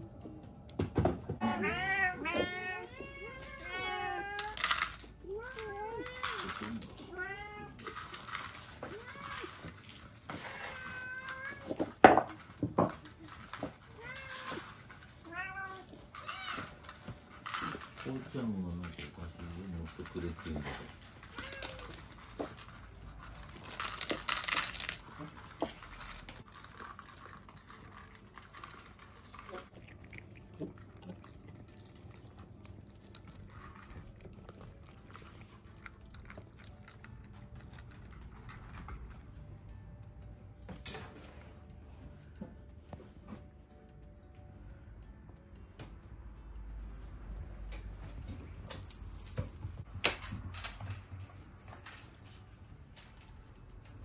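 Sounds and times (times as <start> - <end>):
cats meowing: 1.3 - 12.0, 13.6 - 16.9, 21.2 - 22.2
cats crunching dry kibble: 3.2 - 39.4
kibble clicking in ceramic bowls: 16.9 - 39.2.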